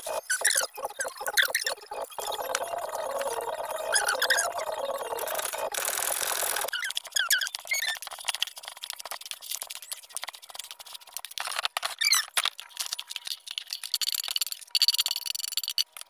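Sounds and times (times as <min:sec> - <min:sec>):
short high squeaks: 0:03.3 - 0:08.0.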